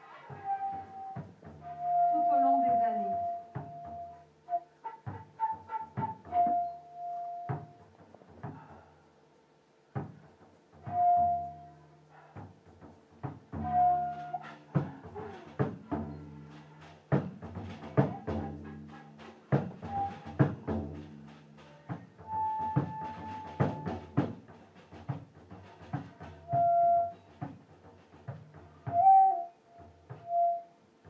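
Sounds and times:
percussive strikes: 0:12.4 - 0:29.3.

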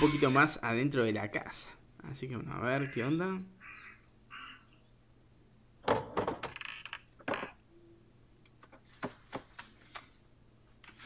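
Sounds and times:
faint steady hum: 0:00.0 - 0:11.0
wooden knocks and clicks: 0:05.8 - 0:07.6.

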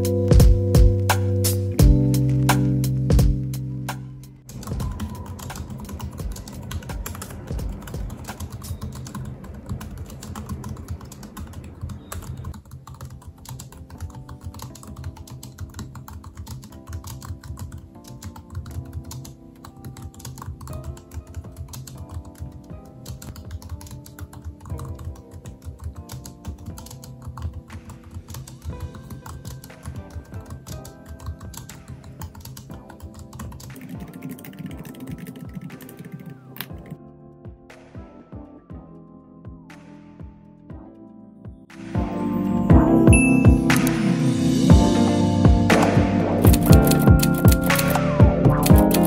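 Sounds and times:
soft background music: 0:00.0 - 0:49.0
keyboard key clicks: 0:45.8 - 0:49.0.

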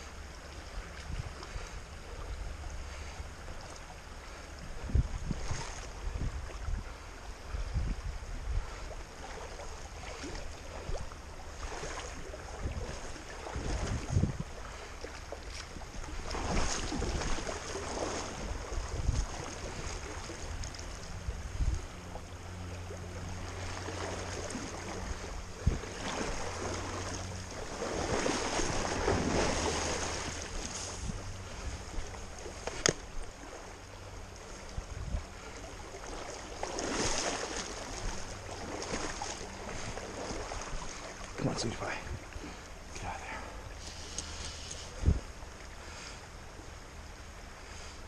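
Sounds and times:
wind buffeting microphone: 0:04.2 - 0:09.3, 0:09.9 - 0:33.4, 0:34.2 - 0:35.6, 0:36.6 - 0:46.0
creek water running over stones: 0:35.7 - 0:46.2.

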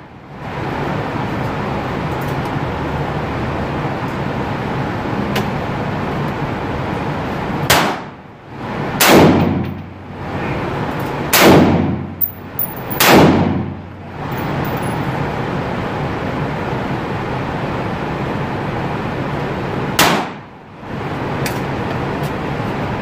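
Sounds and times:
steady background rumble: 0:00.0 - 0:23.0
gunshots with short echo: 0:09.0 - 0:09.6, 0:11.3 - 0:12.1, 0:13.0 - 0:13.7.

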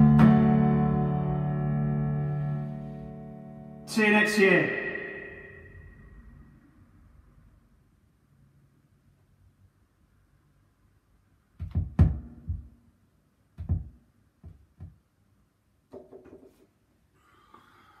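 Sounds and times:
dull knocks and thumps: 0:11.6 - 0:12.7, 0:13.6 - 0:15.0.

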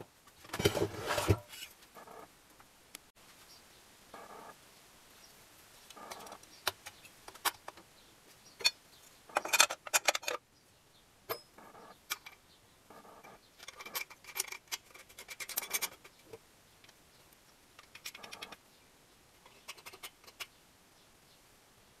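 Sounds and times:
metallic clicks and rattles: 0:08.6 - 0:10.4, 0:13.2 - 0:17.0, 0:17.8 - 0:18.6, 0:19.4 - 0:20.5.

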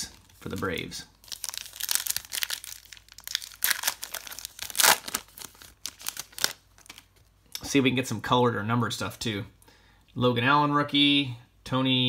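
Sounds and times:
foil wrapper crinkling: 0:00.0 - 0:07.3
foil ripping: 0:01.3 - 0:07.1.

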